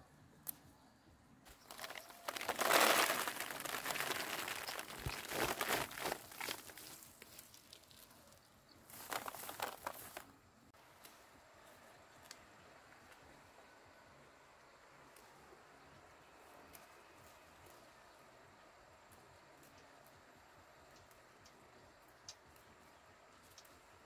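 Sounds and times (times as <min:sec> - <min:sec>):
crinkling rustling handling noise: 0:01.5 - 0:10.4.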